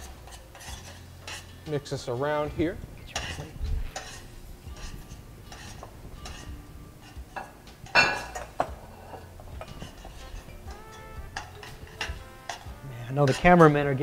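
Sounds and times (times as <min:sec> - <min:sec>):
metal tongs clinking on a pan: 0:00.0 - 0:02.4, 0:03.1 - 0:10.6, 0:11.4 - 0:14.0.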